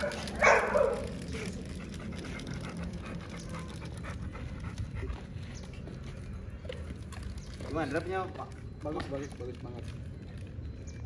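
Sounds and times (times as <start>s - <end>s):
dog panting: 0.9s - 6.2s.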